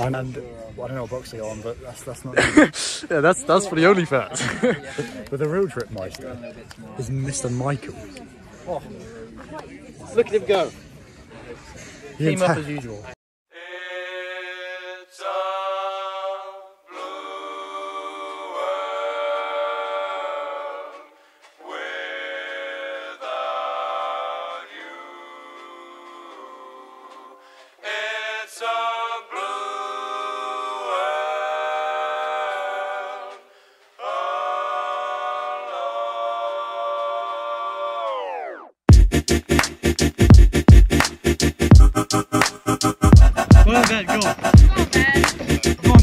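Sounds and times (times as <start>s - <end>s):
choir-like singing: 13.5s - 38.7s, 41.8s - 46.0s.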